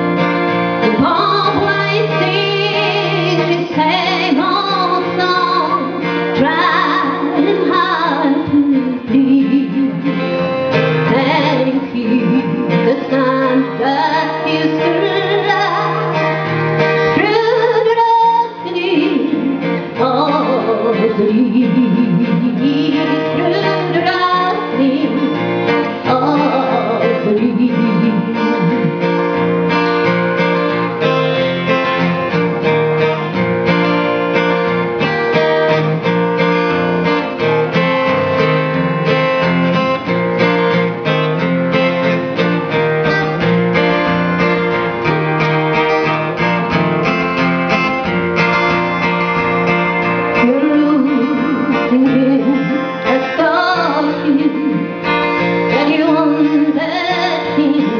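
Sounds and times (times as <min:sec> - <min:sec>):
acoustic guitar strumming: 0:00.0 - 0:57.9
woman singing: 0:00.8 - 0:29.1, 0:50.4 - 0:57.9.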